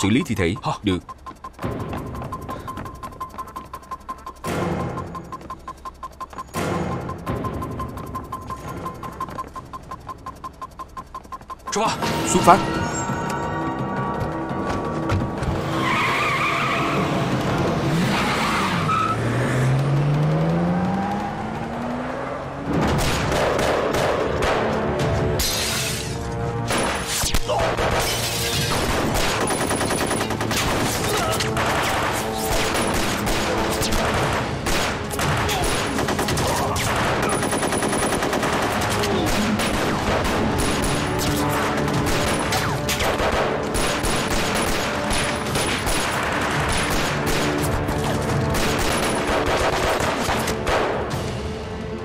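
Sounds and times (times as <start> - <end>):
music: 11.7 - 17.8, 23.4 - 52.0
machine-gun fire: 28.7 - 47.8, 48.4 - 51.0.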